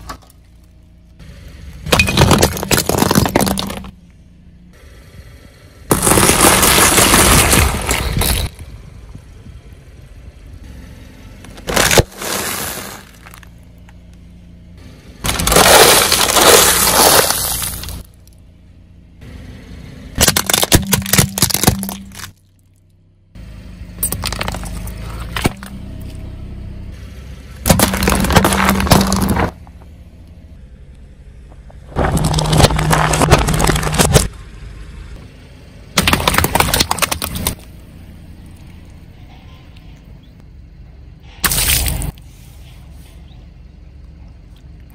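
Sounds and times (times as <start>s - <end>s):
tyre crushing snacks and bottles: 1.8s - 4.0s, 5.9s - 8.6s, 11.6s - 13.5s, 15.2s - 18.0s, 20.2s - 22.4s, 24.0s - 25.8s, 27.6s - 29.6s, 31.9s - 34.3s, 36.0s - 37.6s.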